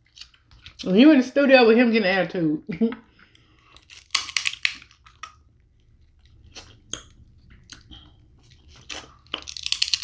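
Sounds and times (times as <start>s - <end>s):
crab shell crackling: 3.6s - 5.6s, 8.9s - 10.0s
chewing and wet mouth smacks: 3.7s - 10.0s.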